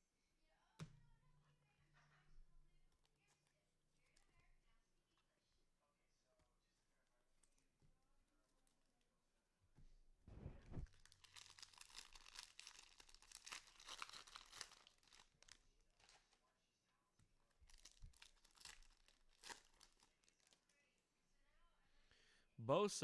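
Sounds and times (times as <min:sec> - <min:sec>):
soft dull bump: 0:10.3 - 0:10.9
plastic wrapper tearing and crinkling: 0:10.3 - 0:16.4, 0:17.6 - 0:20.7.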